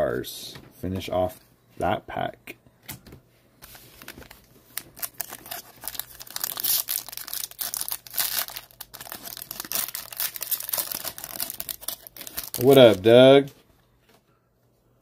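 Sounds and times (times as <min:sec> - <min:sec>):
foil wrapper crinkling and tearing: 0:03.7 - 0:13.5.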